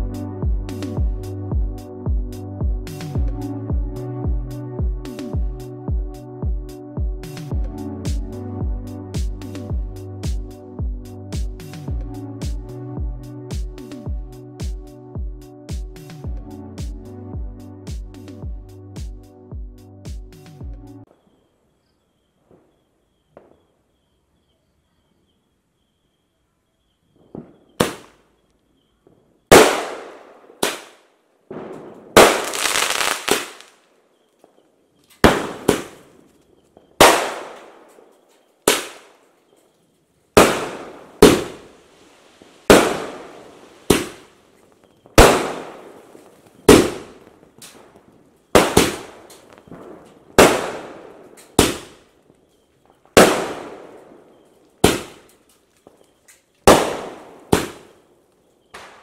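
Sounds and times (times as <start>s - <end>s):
firework bangs: 27.1s - 28.2s, 29.0s - 33.8s, 35.2s - 39.2s, 40.3s - 58.1s, 58.7s - 59.0s.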